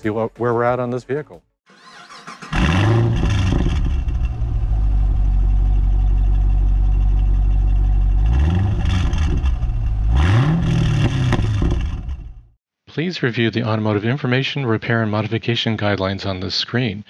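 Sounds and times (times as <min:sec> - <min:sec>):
car engine idling and revving: 0:01.7 - 0:12.6.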